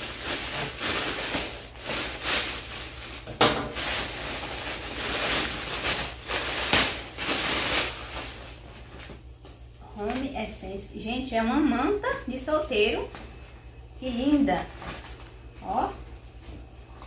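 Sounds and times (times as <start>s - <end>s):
gift packaging rustling: 0.0s - 9.2s, 14.6s - 15.4s.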